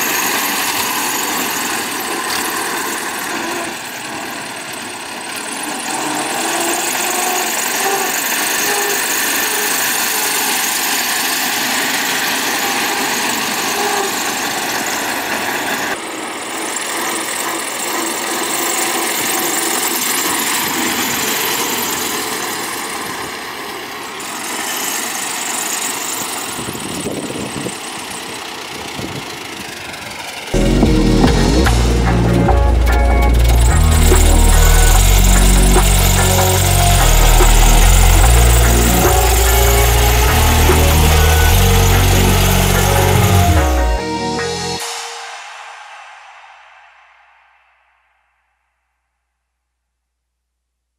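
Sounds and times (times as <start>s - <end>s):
steady rushing noise: 26.4s - 48.4s
car engine running at low speed: 30.6s - 43.6s.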